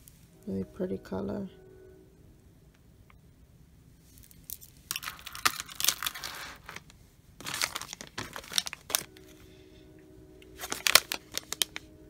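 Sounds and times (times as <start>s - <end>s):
plastic packet crinkling: 4.2s - 9.3s, 10.6s - 11.9s.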